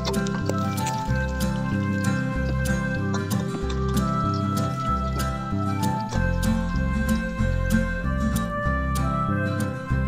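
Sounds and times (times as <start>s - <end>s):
music with bass beat: 0.0s - 10.0s.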